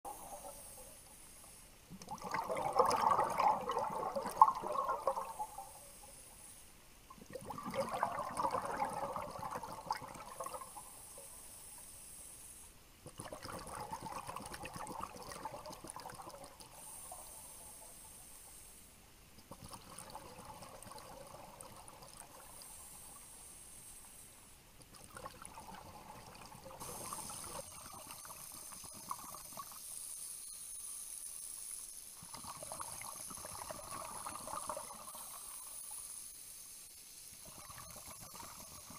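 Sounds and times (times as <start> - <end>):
diver's bubbles underwater: 0.1 - 1.0, 1.9 - 5.9, 7.1 - 10.8, 13.1 - 17.4, 19.5 - 22.7, 24.9 - 29.8, 32.2 - 35.6.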